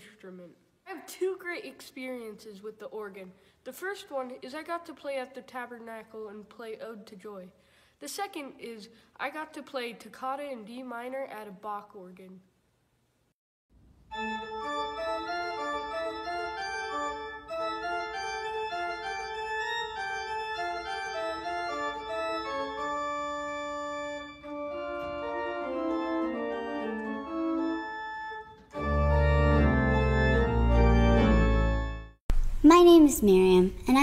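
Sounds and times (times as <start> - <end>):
church organ playing: 14.1 - 32.2
deep organ pedal bass: 14.2 - 32.2.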